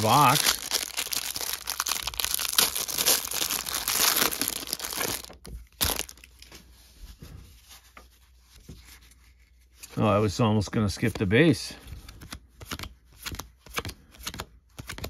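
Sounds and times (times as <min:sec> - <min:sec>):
plastic wrapper crinkling and tearing: 0:00.0 - 0:06.5
cards tapping and rustling: 0:11.9 - 0:15.0.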